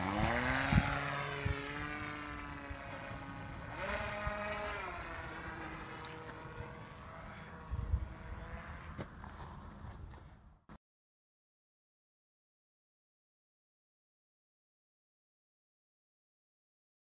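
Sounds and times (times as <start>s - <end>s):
rc plane motor whining: 0.0s - 9.4s.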